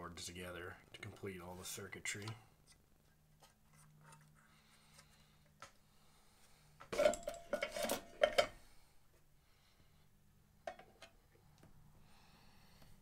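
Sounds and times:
hardware clattering on wood: 0:06.9 - 0:08.6
metallic ring: 0:07.0 - 0:08.5.

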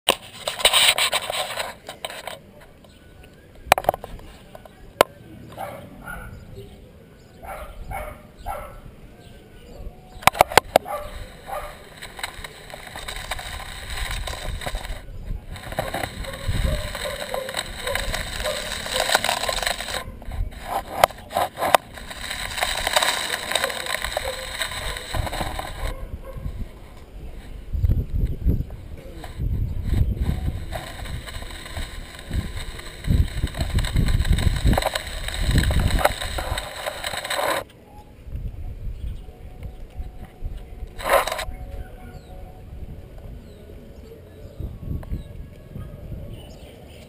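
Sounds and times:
rustling handling noise: 0:00.1 - 0:03.0, 0:10.2 - 0:37.8, 0:39.6 - 0:42.3
rolling over stony dirt: 0:00.1 - 0:37.8, 0:39.6 - 0:45.6
sharp clicks: 0:10.2 - 0:26.0.

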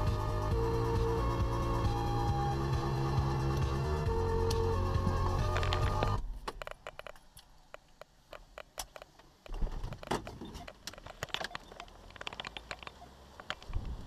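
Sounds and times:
small clicks and rattles: 0:05.4 - 0:14.0
car keys jangling: 0:09.9 - 0:13.8.

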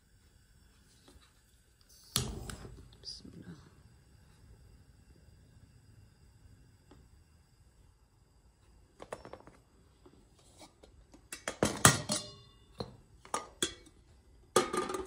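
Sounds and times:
metal kettle clattering: 0:11.3 - 0:13.9, 0:14.5 - 0:15.0.

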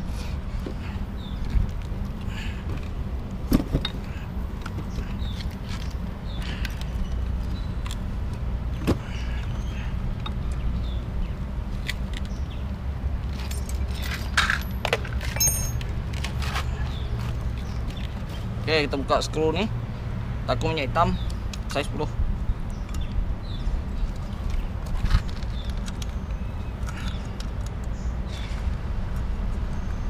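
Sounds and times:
metallic clicks of engine parts: 0:22.6 - 0:23.2, 0:24.1 - 0:28.1.

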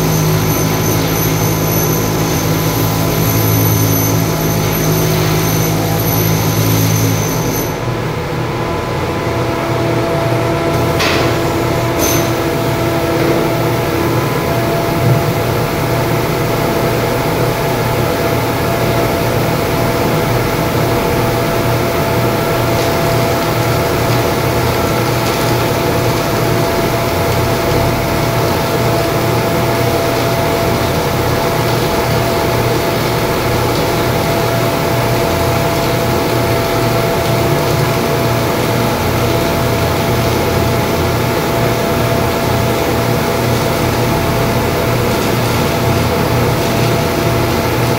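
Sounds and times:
machinery drone: 0:00.0 - 0:47.9.

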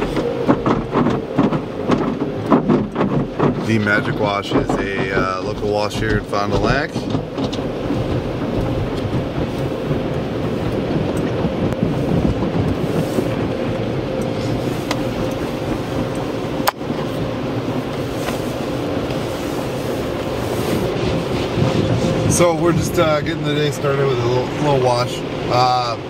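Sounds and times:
water spray hitting car: 0:00.0 - 0:25.6
machine hum: 0:00.0 - 0:26.0.

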